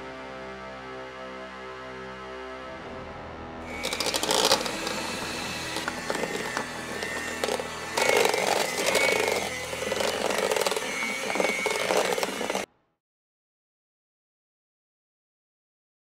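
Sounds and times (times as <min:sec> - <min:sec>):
electric hand mixer whirring: 0:03.7 - 0:12.7.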